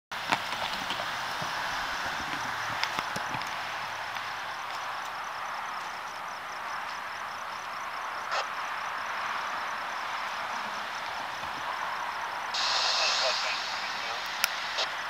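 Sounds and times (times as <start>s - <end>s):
crickets chirping: 0.2s - 15.0s
steady hiss: 11.0s - 15.0s.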